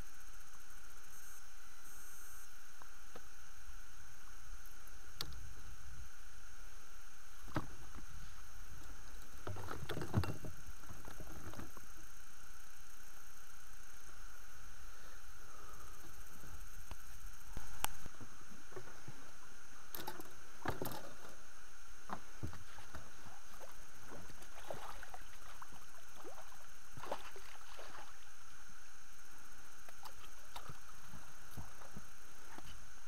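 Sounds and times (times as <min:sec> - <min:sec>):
camera hiss and whine: 0:00.0 - 0:33.0
fish splashing in water: 0:23.6 - 0:28.2.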